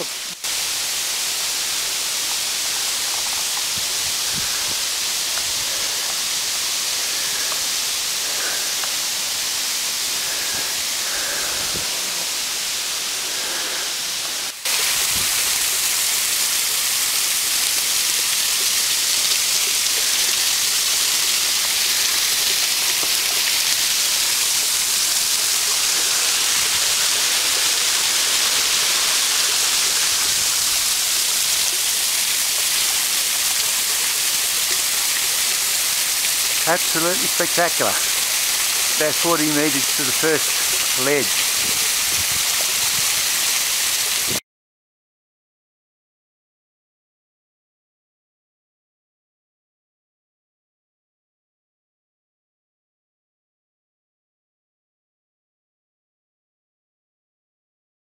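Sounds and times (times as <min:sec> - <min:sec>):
water cascading down rock: 0:00.0 - 0:44.4.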